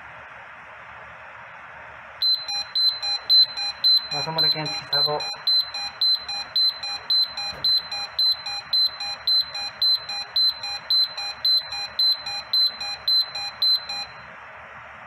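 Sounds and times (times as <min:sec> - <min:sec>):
high-pitched electronic alarm beep: 0:02.2 - 0:14.2.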